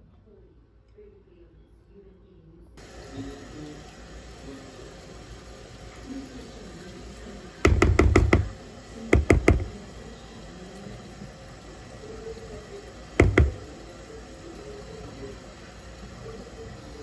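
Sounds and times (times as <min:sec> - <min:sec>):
knocks on mixing bowl: 0:07.6 - 0:09.8, 0:13.2 - 0:13.7.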